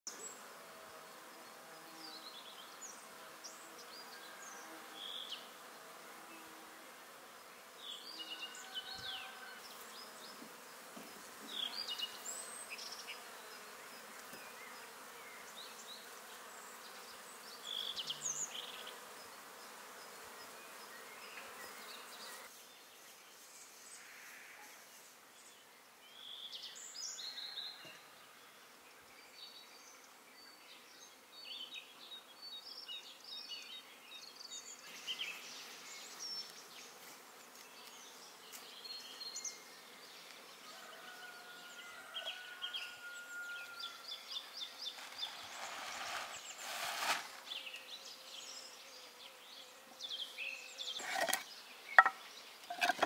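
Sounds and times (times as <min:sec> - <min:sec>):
insect buzzing: 0:00.1 - 0:25.2, 0:42.0 - 0:53.0.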